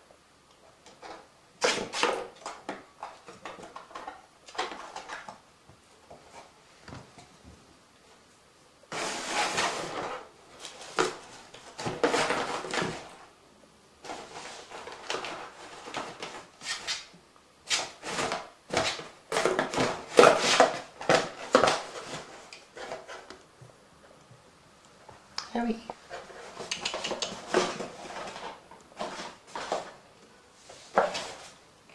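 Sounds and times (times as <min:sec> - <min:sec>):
paper bag and plastic rustling: 0:08.9 - 0:13.3, 0:14.0 - 0:17.1, 0:27.4 - 0:31.6.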